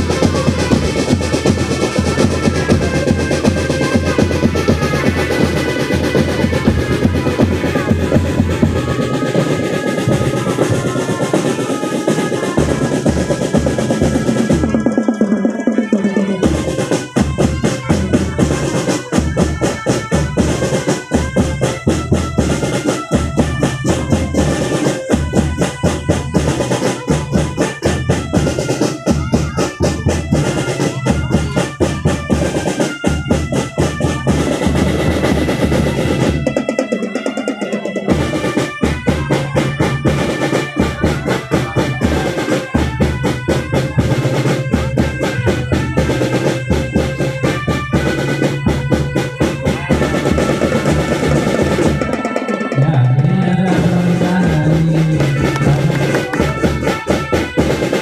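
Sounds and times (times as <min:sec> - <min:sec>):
brass melody: 0:00.0 - 0:58.0
snare and bass drums: 0:00.0 - 0:58.0
snare roll: 0:55.4 - 0:58.0.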